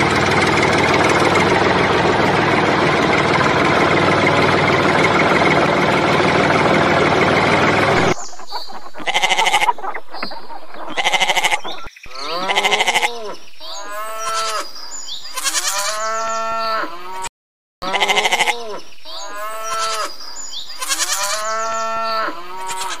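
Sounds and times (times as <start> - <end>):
sheep bleating: 9.0 - 9.7, 10.9 - 14.7, 15.3 - 20.1, 20.8 - 23.0.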